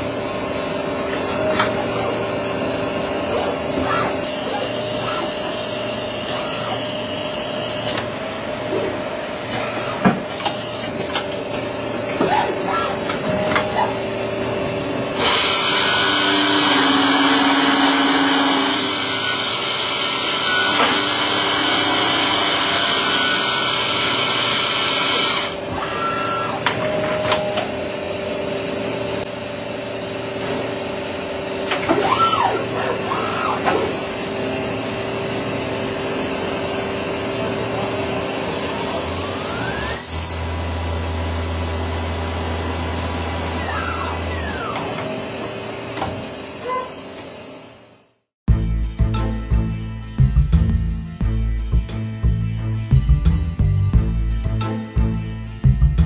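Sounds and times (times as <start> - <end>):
lathe machine hum: 0.0 - 48.0
short rising whines: 9.6 - 47.6.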